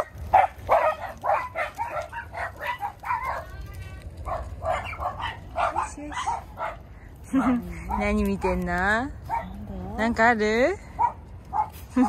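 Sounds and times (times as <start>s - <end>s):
dogs yapping: 0.0s - 8.2s, 9.2s - 9.6s, 11.0s - 12.0s.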